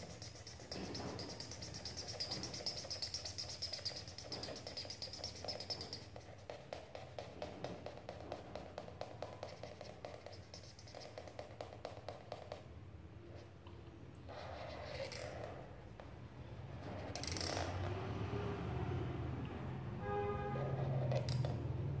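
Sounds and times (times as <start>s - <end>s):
marker scribbling on paper: 0.0s - 12.6s, 14.3s - 15.6s, 20.5s - 21.4s.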